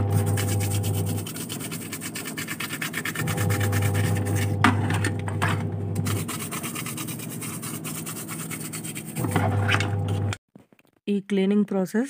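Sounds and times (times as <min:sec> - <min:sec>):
toothbrush scrubbing plastic: 0:00.0 - 0:04.6, 0:06.0 - 0:09.7
low machine hum: 0:03.2 - 0:10.4.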